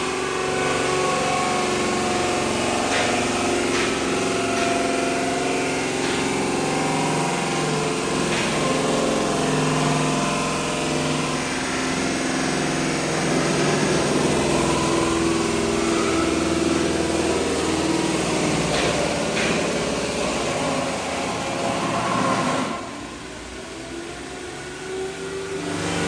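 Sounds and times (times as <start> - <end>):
machine grinding wood: 0.0 - 23.1.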